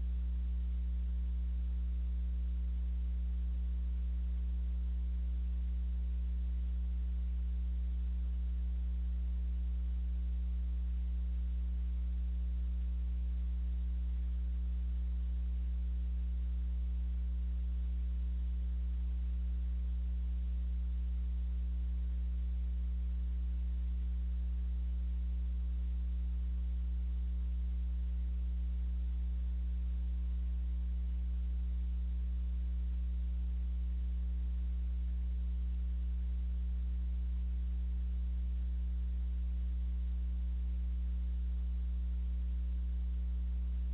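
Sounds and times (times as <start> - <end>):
electrical mains hum: 0.0 - 43.9.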